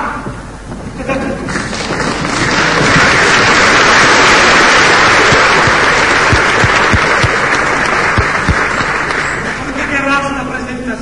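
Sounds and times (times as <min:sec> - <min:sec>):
audience applauding: 0:01.5 - 0:09.9.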